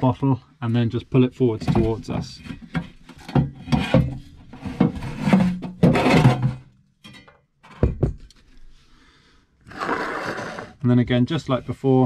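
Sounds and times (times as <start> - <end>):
gas bottle scraping: 2.4 - 6.7, 9.6 - 10.9.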